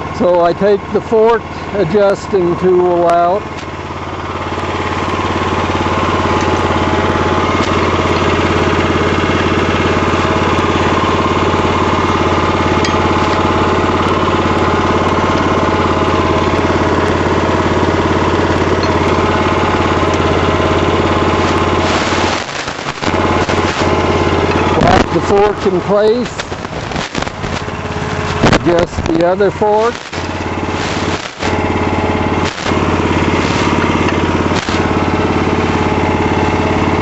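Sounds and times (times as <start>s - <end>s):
small engine running: 0.0s - 37.0s.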